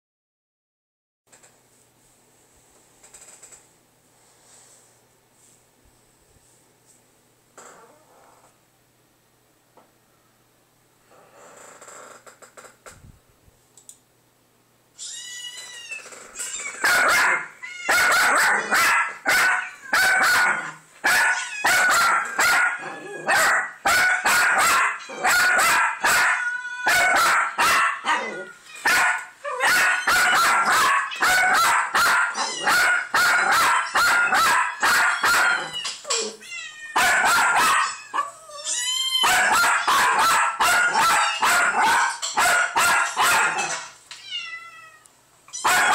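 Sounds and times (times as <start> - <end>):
cats meowing from speakers: 15.0 - 16.9, 17.6 - 18.7, 21.3 - 22.0, 32.3 - 33.2, 33.8 - 37.0, 44.1 - 45.8
dog barking: 16.8 - 35.7, 37.0 - 38.3, 39.2 - 43.8, 45.6 - 45.9.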